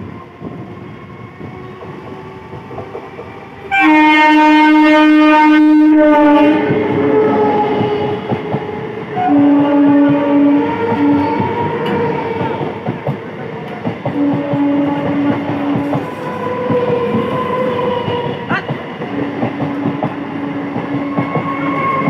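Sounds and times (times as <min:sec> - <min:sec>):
train horn blast: 0:03.7 - 0:07.6, 0:09.2 - 0:12.0, 0:14.1 - 0:16.3
train wheels clattering: 0:06.6 - 0:09.2, 0:10.0 - 0:22.0.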